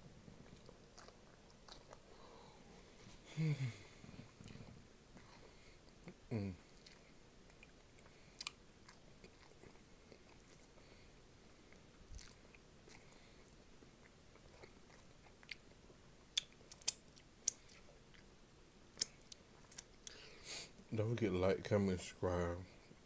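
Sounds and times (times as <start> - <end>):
person chewing snack food: 0.3 - 2.5, 4.2 - 20.3.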